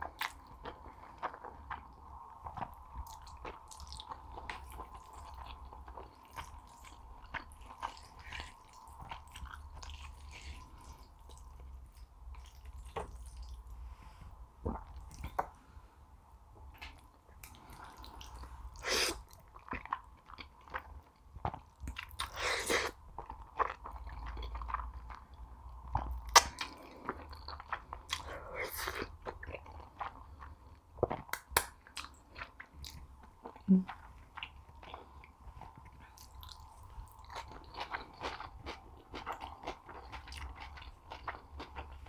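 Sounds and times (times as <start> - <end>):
faint steady hum: 0.0 - 42.0
wet chewing: 16.8 - 42.0.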